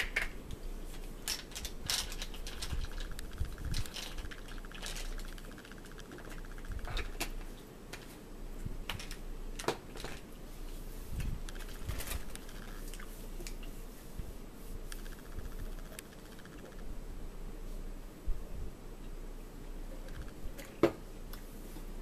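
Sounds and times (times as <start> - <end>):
fast fine rattle: 1.2 - 7.4, 11.4 - 13.1, 14.9 - 16.9.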